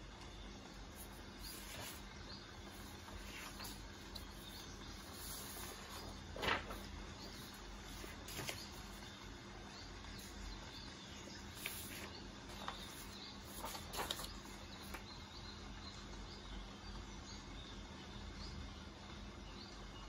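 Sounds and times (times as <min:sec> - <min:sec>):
steady hiss: 0:00.0 - 0:15.1
birds: 0:00.0 - 0:20.0
paper sheets rustling: 0:00.8 - 0:15.1.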